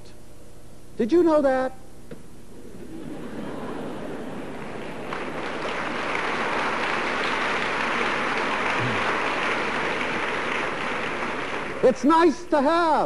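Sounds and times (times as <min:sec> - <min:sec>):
audience applauding: 0:02.8 - 0:12.4.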